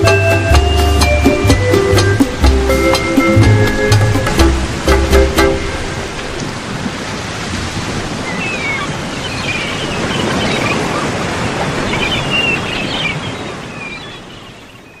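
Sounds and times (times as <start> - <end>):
waves breaking on a beach: 0.0 - 15.0
birds calling: 8.0 - 15.0.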